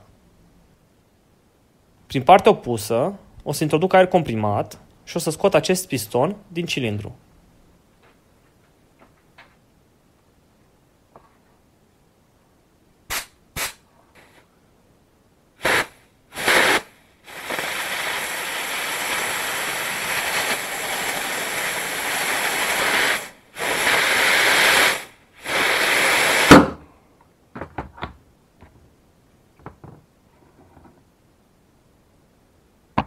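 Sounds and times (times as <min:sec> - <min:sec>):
air blow gun hissing: 0:13.1 - 0:14.5, 0:15.6 - 0:26.8
piston popping free with bang: 0:26.5 - 0:26.8.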